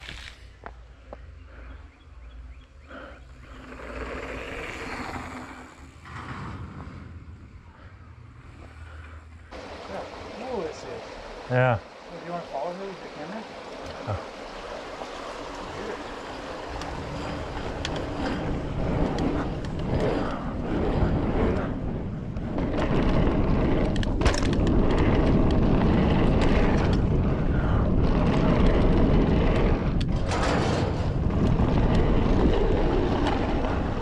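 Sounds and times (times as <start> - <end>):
bike tyres rumbling on stone: 2.9 - 7.9, 13.9 - 34.0
wind on microphone: 13.6 - 34.0
bike clicks and knocks: 22.4 - 25.7.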